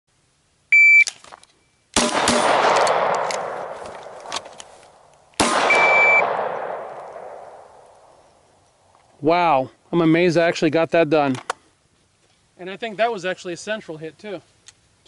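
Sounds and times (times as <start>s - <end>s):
electronic beep: 0.7s - 1.1s, 5.7s - 6.3s
pistol shots: 2.0s - 4.3s, 5.4s - 8.1s.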